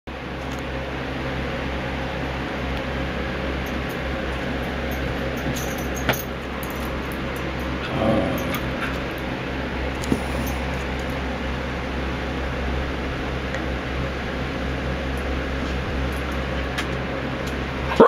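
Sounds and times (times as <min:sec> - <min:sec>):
box fan humming: 0:00.1 - 0:18.0
dog grumbling: 0:07.8 - 0:10.8.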